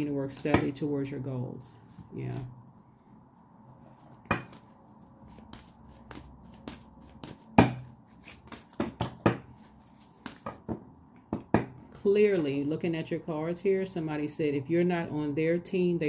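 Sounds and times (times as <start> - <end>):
cards clicking and tapping: 4.3 - 10.7.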